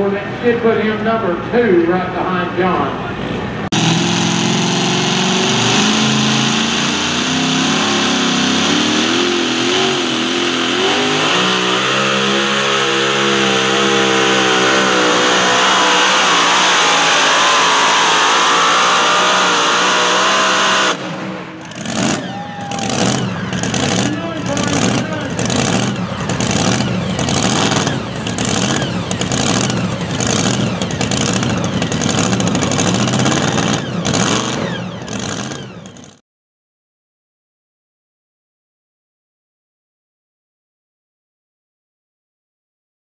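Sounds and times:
supercharged engine at full throttle: 3.6 - 36.2
tyres spinning in dirt: 21.6 - 36.2.

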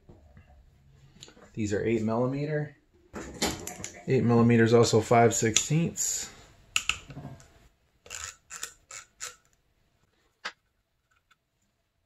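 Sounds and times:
ratchet metal clicks: 8.1 - 9.5.

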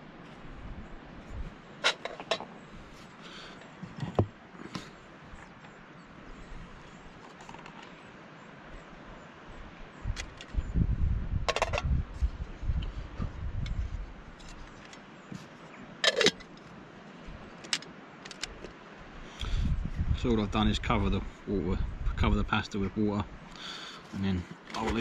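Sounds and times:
wind buffeting microphone: 0.0 - 1.6, 9.5 - 14.6, 19.4 - 23.5.

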